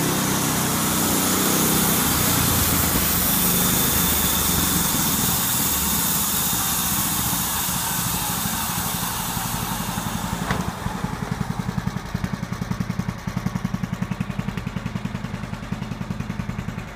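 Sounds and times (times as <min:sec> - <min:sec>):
band saw blade cutting log: 0:00.0 - 0:12.3
small engine idling: 0:00.0 - 0:16.9.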